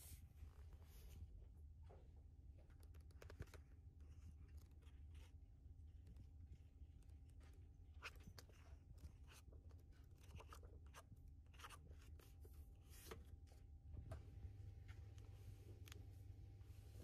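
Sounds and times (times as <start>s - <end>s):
low room hum: 0.0s - 17.0s
book pages rustling: 2.7s - 13.7s.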